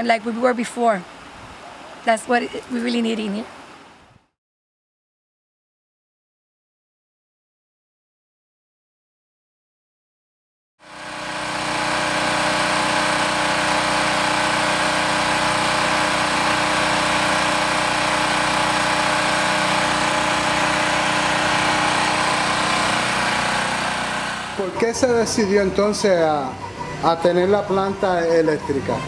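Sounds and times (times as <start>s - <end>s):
generator engine drone: 10.8s - 29.0s.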